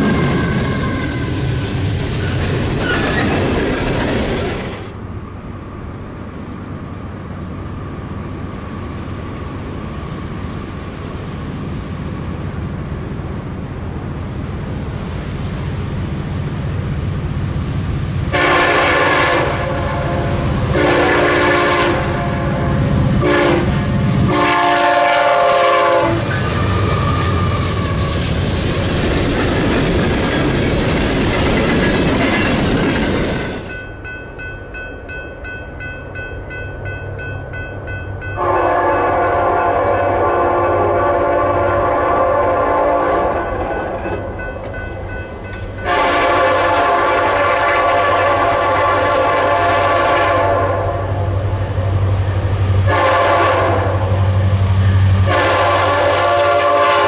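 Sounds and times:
locomotive air horn: 0.0s - 1.5s, 18.3s - 28.1s, 38.4s - 43.8s, 45.8s - 51.2s, 52.8s - 54.4s, 55.2s - 57.0s
train wheels clicking over rail joints: 0.0s - 5.0s, 25.5s - 38.4s, 43.1s - 46.6s
diesel locomotive rumble: 0.0s - 57.0s.

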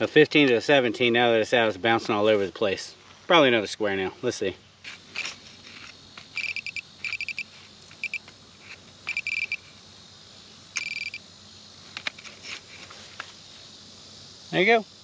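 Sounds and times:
metal detector beeping: 6.3s - 8.3s, 9.0s - 9.7s, 10.8s - 11.2s.

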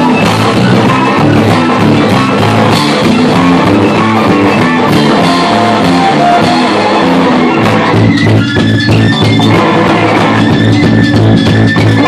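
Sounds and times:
drum kit: 0.0s - 12.0s
electric bass: 0.0s - 12.0s
electric guitar: 0.0s - 12.0s
violin bowed: 3.0s - 12.0s.

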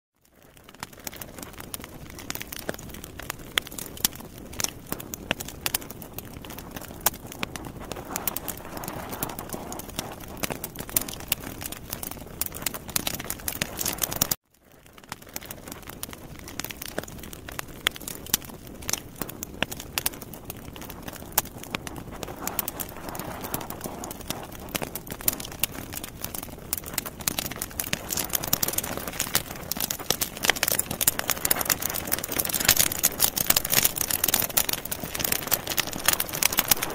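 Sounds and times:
fat crackling and popping: 0.2s - 36.9s
sausages sizzling on grill: 21.2s - 36.9s.

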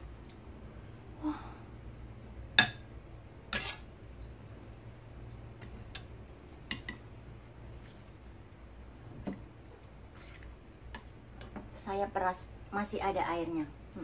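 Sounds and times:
spoon tapping plate and bowl: 6.7s - 7.0s.

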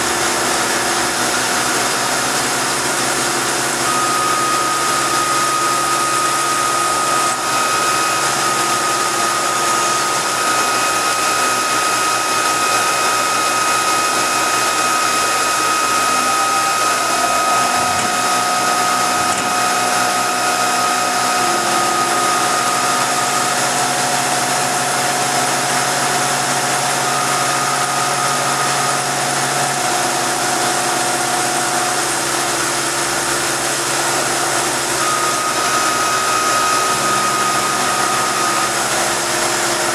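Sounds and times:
milling machine whirring: 0.0s - 39.9s
high whining cutting tones: 3.0s - 39.9s.

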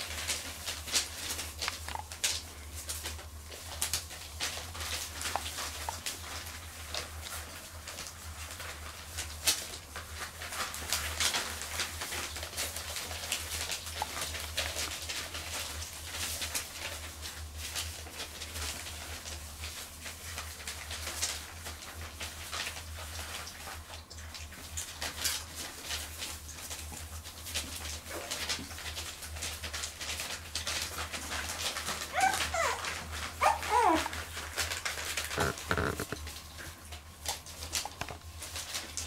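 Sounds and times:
puppy claws clicking on tiles: 0.1s - 8.0s, 27.6s - 39.0s.

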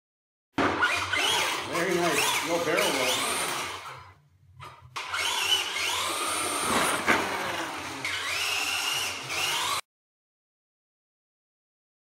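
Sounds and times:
toy car electric motor whining: 0.8s - 4.2s, 5.0s - 9.9s.

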